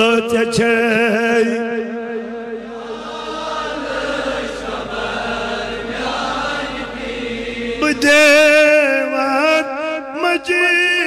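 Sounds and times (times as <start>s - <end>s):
voices chanting: 2.6s - 8.4s.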